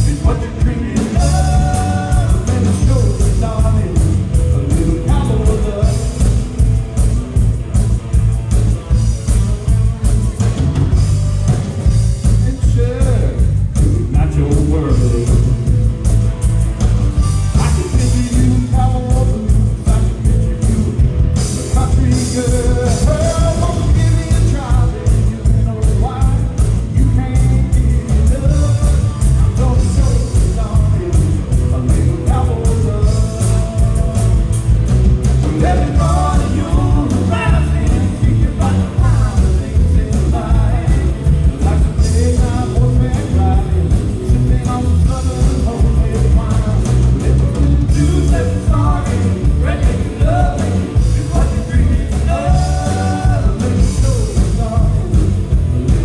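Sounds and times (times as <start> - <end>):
person singing: 0.0 - 6.5, 17.3 - 34.7, 35.4 - 56.0
electric guitars: 0.0 - 56.0
heavy booming bass: 0.0 - 56.0
steady drum beat: 0.0 - 56.0.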